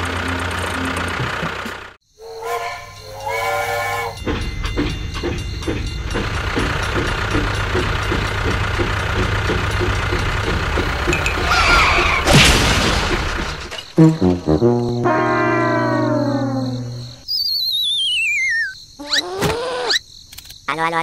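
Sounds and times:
toy steam locomotive chugging: 0.0s - 12.3s
steam train whistle blowing: 2.2s - 4.2s, 15.0s - 16.5s
sharp crash: 12.0s - 16.1s.

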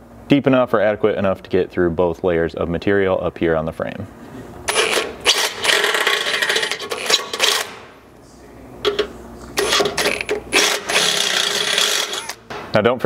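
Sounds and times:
drill boring through steel: 9.6s - 12.4s.

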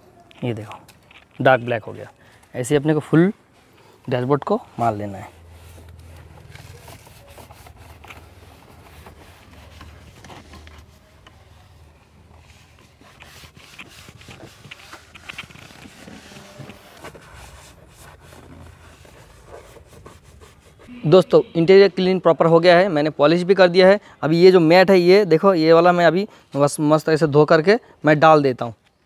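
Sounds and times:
sponge scuffing on plastic: 4.6s - 11.7s, 12.3s - 20.9s.

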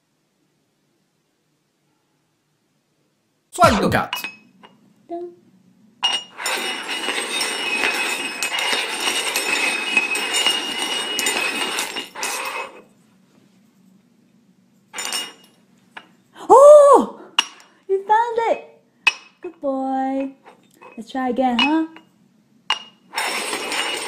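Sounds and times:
steel cups scraping and clinking: 6.0s - 12.9s, 15.0s - 16.1s, 17.4s - 17.8s, 20.2s - 22.1s, 22.7s - 24.0s.

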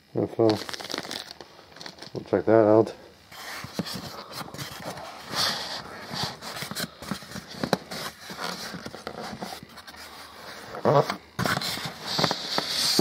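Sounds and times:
foam scraping against cardboard: 3.3s - 13.0s.

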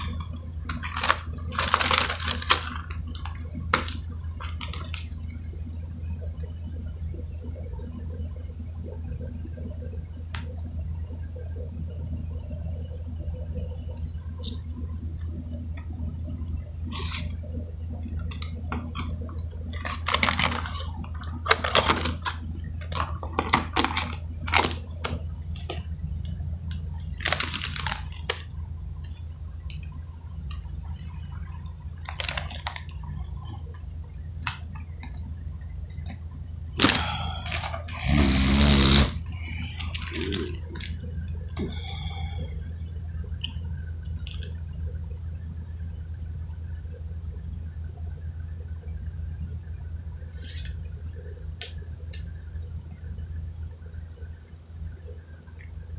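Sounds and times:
plastic package moved about: 0.0s - 5.4s, 19.8s - 25.8s, 27.1s - 28.5s, 32.0s - 32.9s, 39.8s - 41.0s
handling rustles and clicks: 0.0s - 5.5s
steady low hum: 0.0s - 55.9s.

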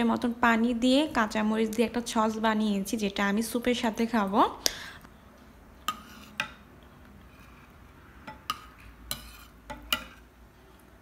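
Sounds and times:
spoon stirring thick soup: 5.4s - 10.4s
spoon clinking on ceramic bowl: 8.3s - 10.2s.

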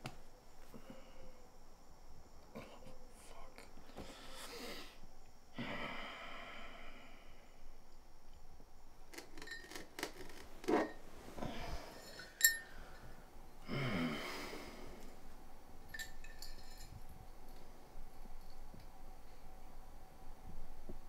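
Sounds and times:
glass bottle clink: 9.4s - 9.8s, 12.0s - 12.7s, 15.9s - 17.0s
bedding rustling: 10.2s - 13.2s.

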